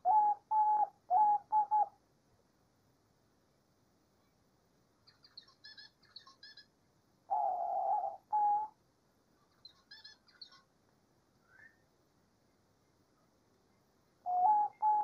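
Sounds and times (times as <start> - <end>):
dove cooing: 0.0 - 2.0, 7.3 - 8.8, 14.2 - 15.0
faint high chirping: 5.0 - 10.7, 11.4 - 15.0.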